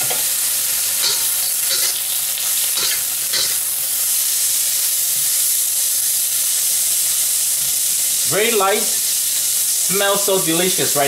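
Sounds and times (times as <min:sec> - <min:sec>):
food sizzling in hot oil: 0:00.0 - 0:11.0
metal spatula scraping wok: 0:01.0 - 0:03.6.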